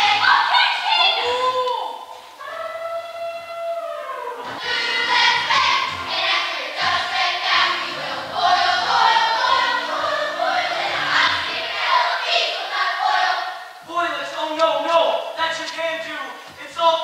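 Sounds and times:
children's chorus singing: 0:00.0 - 0:01.2, 0:02.0 - 0:13.8
musical accompaniment: 0:04.4 - 0:13.9.

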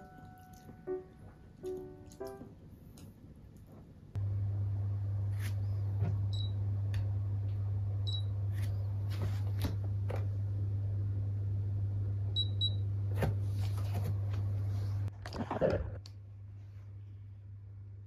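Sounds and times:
steady low hum: 0:00.0 - 0:18.0
bathroom scale beeping: 0:06.2 - 0:06.7, 0:08.0 - 0:08.4, 0:12.3 - 0:12.9.

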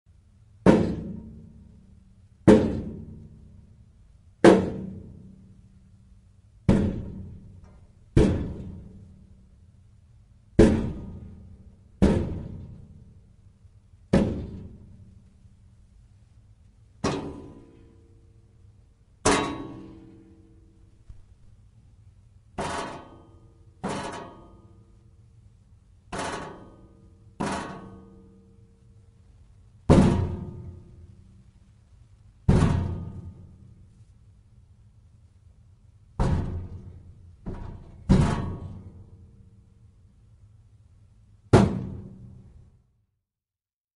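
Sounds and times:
metal file drawers banging: 0:17.0 - 0:17.8, 0:19.3 - 0:20.1, 0:36.2 - 0:38.9.

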